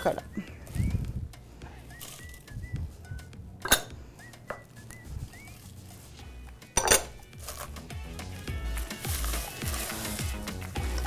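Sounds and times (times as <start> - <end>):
glass bowl clinking on saucepan: 6.8 - 7.1.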